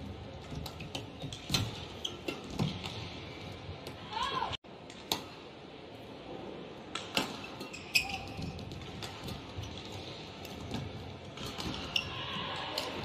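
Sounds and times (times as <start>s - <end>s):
shoes squeaking on court: 0.4s - 3.5s, 7.3s - 12.2s.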